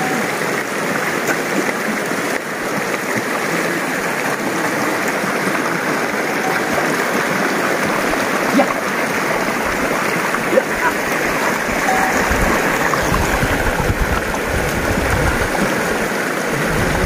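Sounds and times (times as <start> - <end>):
river rushing over stones: 0.0 - 17.0.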